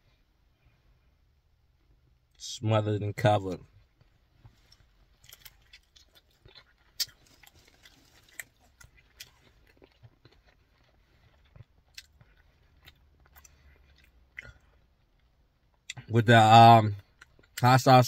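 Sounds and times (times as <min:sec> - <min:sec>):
person chewing: 0:04.0 - 0:16.1.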